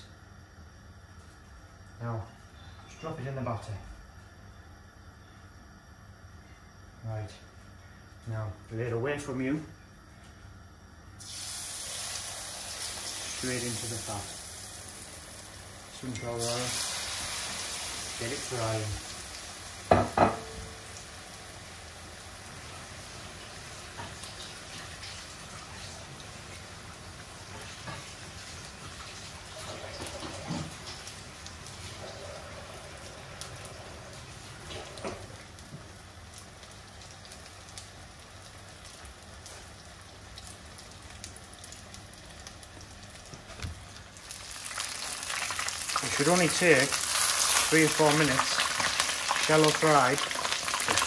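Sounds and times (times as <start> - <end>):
fish sizzling in frying pan: 11.2 - 51.0.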